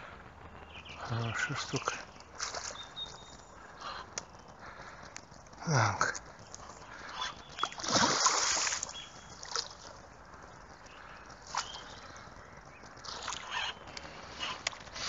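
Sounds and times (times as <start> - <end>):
fish splashing in water: 2.4 - 2.9, 7.0 - 10.0, 13.0 - 13.8.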